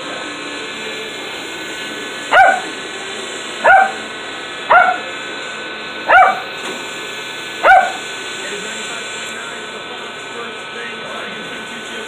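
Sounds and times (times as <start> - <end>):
toy helicopter rotor whirr: 0.0 - 5.2, 5.9 - 9.3
small dog barking: 2.3 - 2.7, 3.6 - 4.1, 4.7 - 5.1, 6.1 - 6.5, 7.6 - 8.0.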